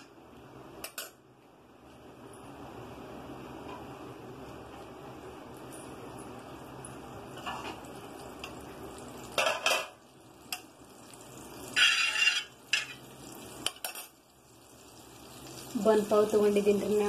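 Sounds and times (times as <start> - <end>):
faint steady hiss: 0.0 - 17.0
metal utensil scraping griddle: 11.7 - 14.1.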